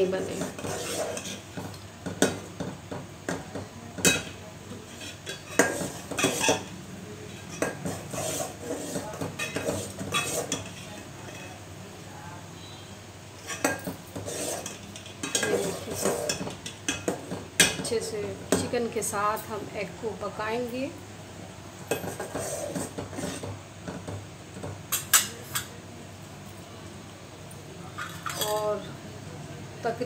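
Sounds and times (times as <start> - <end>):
metal spoon scraping a pot: 0.0 - 1.7, 4.1 - 11.6, 13.4 - 17.7, 21.9 - 23.6.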